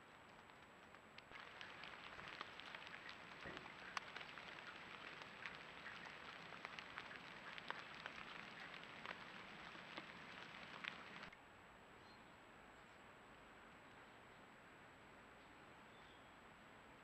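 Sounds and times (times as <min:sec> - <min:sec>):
light rain on leaves: 0:00.0 - 0:11.4.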